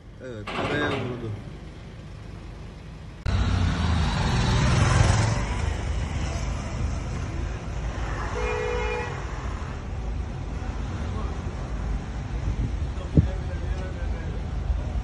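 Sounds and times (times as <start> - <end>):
road traffic noise: 0.0 - 15.0
car horn toot: 8.4 - 9.2.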